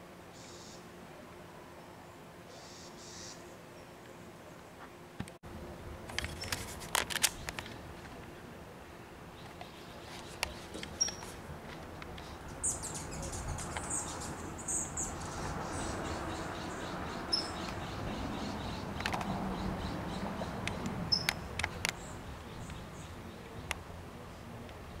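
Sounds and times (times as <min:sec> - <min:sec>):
outdoor background noise: 0:00.0 - 0:25.0
small birds chirping: 0:00.4 - 0:00.9, 0:02.5 - 0:04.7, 0:09.3 - 0:23.8
sharp clicks: 0:19.0 - 0:19.4.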